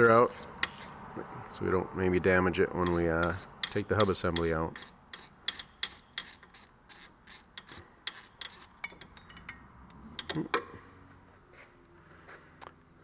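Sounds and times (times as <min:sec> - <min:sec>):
ratchet wrench clicking: 0:00.2 - 0:01.0, 0:02.8 - 0:09.6.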